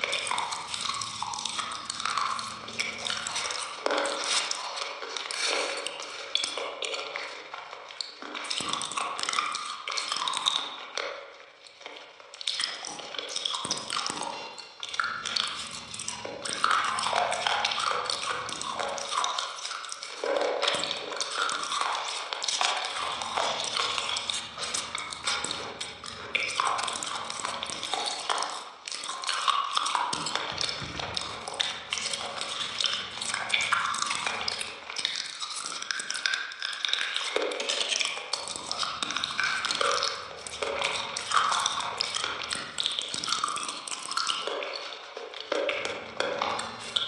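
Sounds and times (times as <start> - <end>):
wet smacking and chewing: 0.0 - 47.0.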